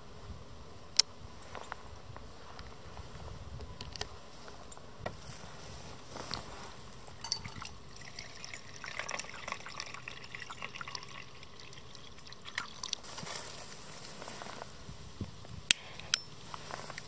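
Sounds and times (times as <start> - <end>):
small drips and splashes: 7.2 - 13.1
liquid fuel trickling: 7.2 - 13.2.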